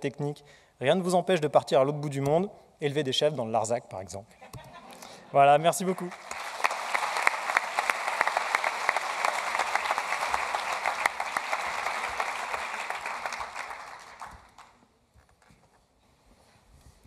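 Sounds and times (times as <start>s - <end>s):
audience applauding: 5.8s - 14.8s.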